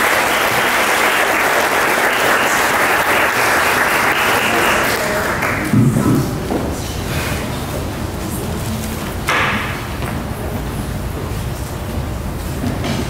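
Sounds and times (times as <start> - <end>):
audience applause: 0.0 - 5.7.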